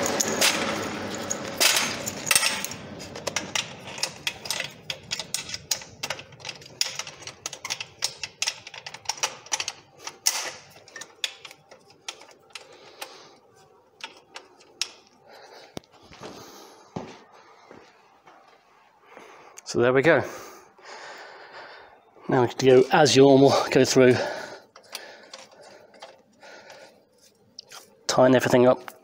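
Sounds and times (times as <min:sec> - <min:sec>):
metal stretcher clicking and rattling: 0:00.0 - 0:15.2, 0:22.6 - 0:28.6.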